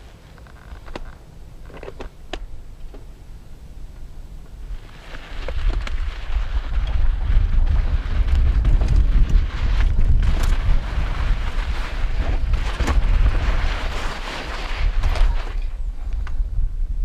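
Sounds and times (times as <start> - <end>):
wind buffeting microphone: 3.7 - 17.0
tyres crunching on loose dirt: 4.4 - 16.4
bike clattering over bumps: 5.0 - 15.8.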